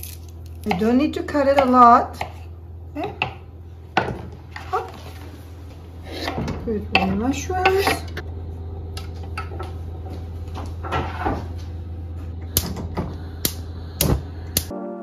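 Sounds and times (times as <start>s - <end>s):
steady low hum: 0.0s - 14.7s.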